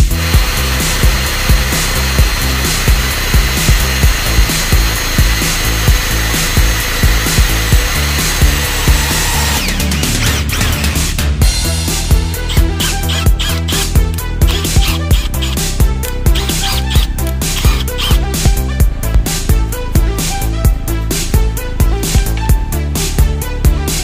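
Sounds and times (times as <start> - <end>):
electric drill whining: 0.0 - 18.7
background music with beat: 0.0 - 24.0.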